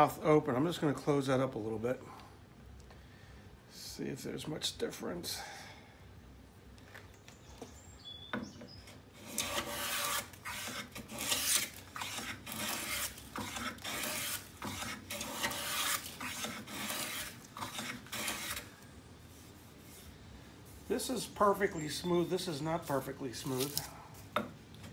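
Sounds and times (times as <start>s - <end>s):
hand plane strokes rasping on wood: 9.2s - 18.7s.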